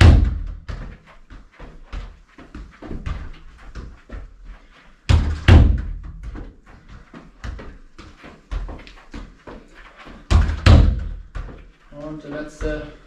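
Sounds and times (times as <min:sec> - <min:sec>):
ball thudding against wall: 0:05.1 - 0:06.4.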